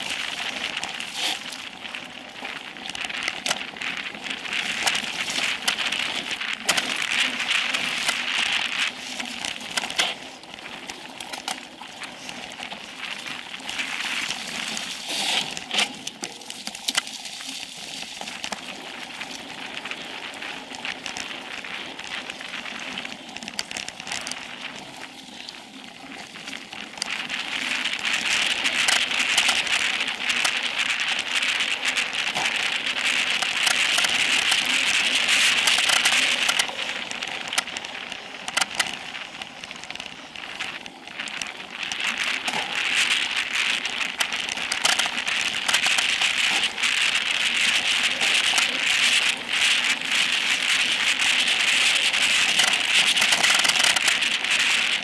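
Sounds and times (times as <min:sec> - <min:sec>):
bike rattling over bumps: 0:00.0 - 0:55.0
bike tyres crackling on dirt: 0:00.0 - 0:55.0.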